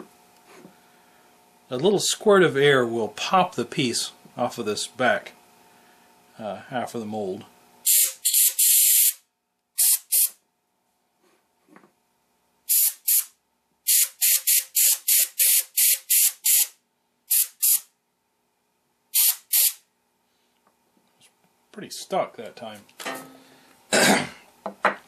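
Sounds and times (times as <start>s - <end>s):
air blow gun squirts: 7.9s - 9.2s, 9.8s - 10.4s, 12.7s - 13.3s, 13.9s - 16.7s, 17.3s - 17.9s, 19.2s - 19.8s.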